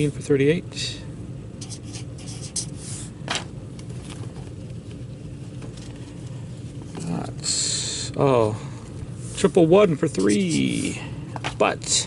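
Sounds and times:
low room hum: 0.0s - 12.0s
marker pen scratching on paper: 1.6s - 3.1s, 10.0s - 11.0s.

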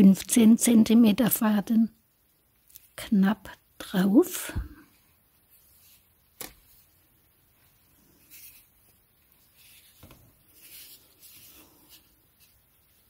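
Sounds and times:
thread rubbing and rustling: 4.8s - 13.0s.

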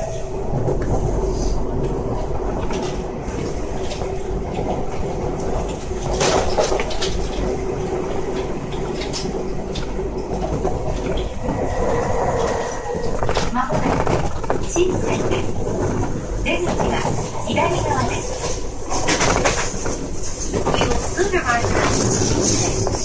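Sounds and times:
electric train hum and rumble: 0.0s - 23.0s.

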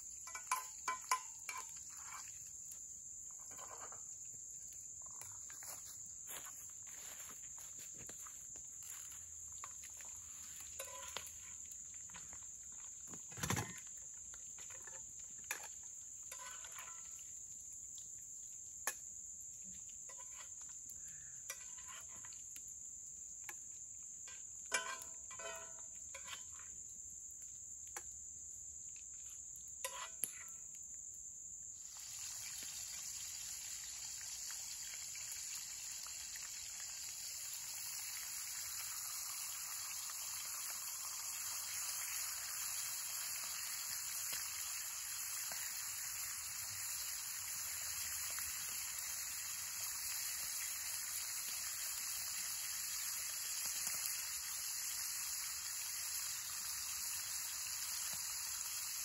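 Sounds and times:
frying pan sizzling: 0.0s - 2.6s, 8.8s - 11.6s, 16.3s - 17.1s, 31.8s - 59.0s
high insect drone: 0.0s - 15.0s, 29.9s - 59.0s
cooking gear clinking: 0.2s - 2.2s, 10.8s - 11.3s.

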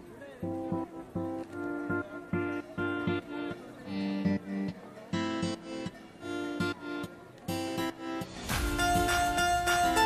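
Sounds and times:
plucked string chords: 7.5s - 10.0s.

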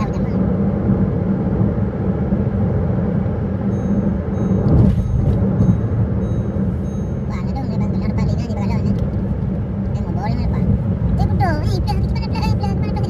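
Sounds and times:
car road and engine rumble: 0.0s - 13.0s
thin high tones: 3.7s - 8.0s.

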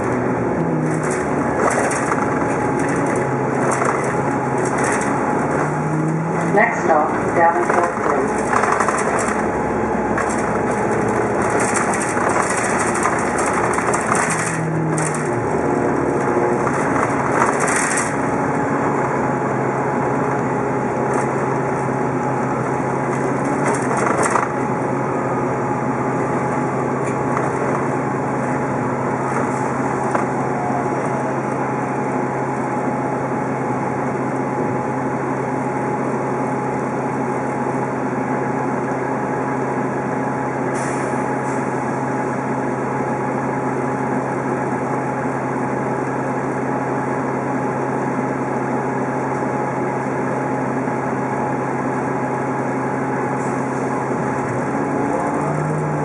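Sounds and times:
road and body noise: 0.0s - 38.0s
bus drivetrain hum: 0.0s - 56.0s.

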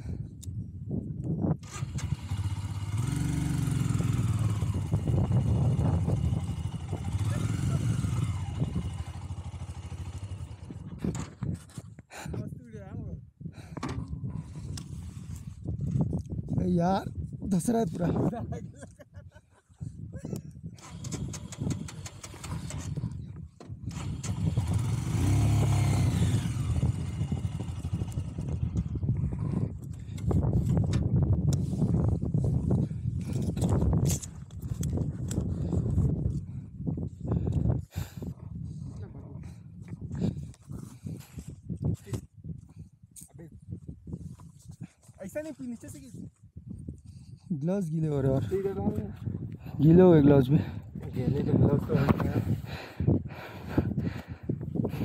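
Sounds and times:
motorcycle engine revving: 1.6s - 11.1s, 20.8s - 31.0s.

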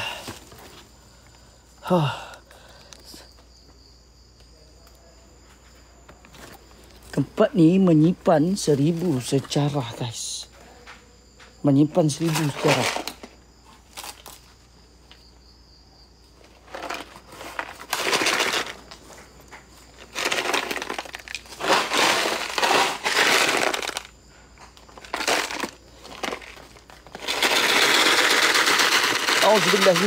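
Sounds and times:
crinkling handling noise: 5.4s - 7.4s, 8.5s - 15.3s, 16.2s - 30.0s.

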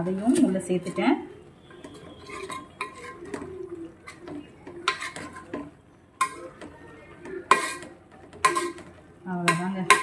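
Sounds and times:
spoon clinking against pot: 1.8s - 3.5s, 4.1s - 6.7s, 7.5s - 10.0s
metal spoon scraping through rice: 1.8s - 6.6s, 7.4s - 10.0s.

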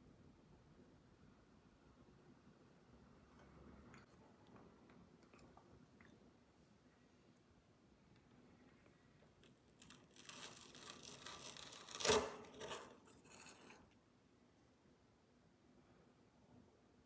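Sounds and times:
metal spoon scraping dessert: 10.4s - 14.0s.

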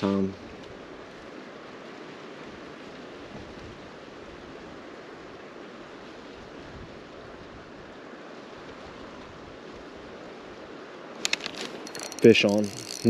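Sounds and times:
wind buffeting microphone: 2.6s - 4.8s.

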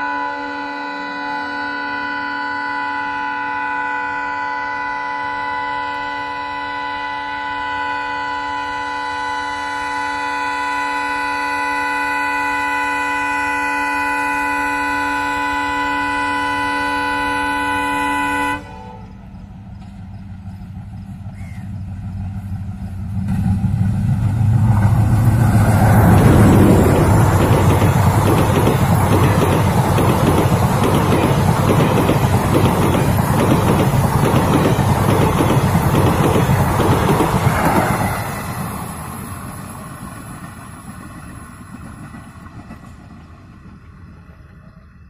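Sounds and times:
locomotive horn long blast: 0.0s - 19.3s
locomotive engine and wheel rumble: 14.6s - 45.0s.

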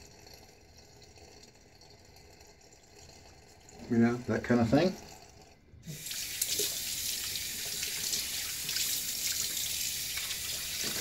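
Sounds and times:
water running into basin: 0.0s - 11.0s.

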